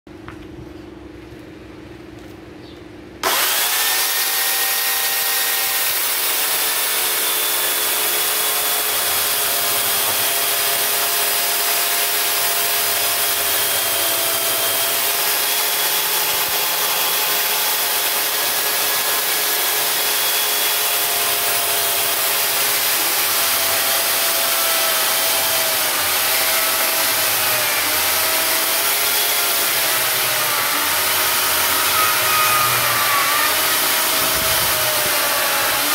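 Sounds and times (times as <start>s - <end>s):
electric chainsaw cutting wood: 3.2s - 35.9s.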